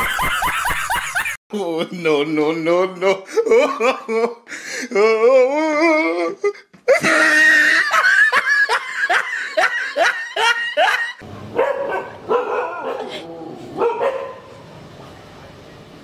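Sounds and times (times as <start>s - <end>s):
wavering vocal cry: 3.3s - 8.3s
dog barking rapidly: 11.4s - 13.2s, 13.8s - 14.6s.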